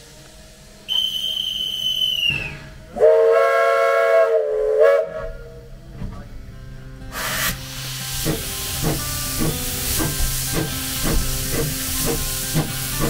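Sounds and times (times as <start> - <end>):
steam locomotive chime whistle: 0.0 - 5.7, 7.1 - 13.0
shrill guard's whistle: 0.9 - 2.8.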